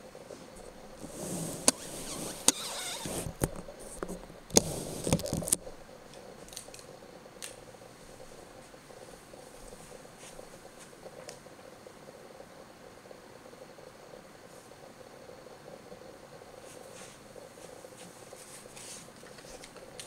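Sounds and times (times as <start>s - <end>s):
rustling: 0.3s - 11.4s, 16.6s - 20.0s.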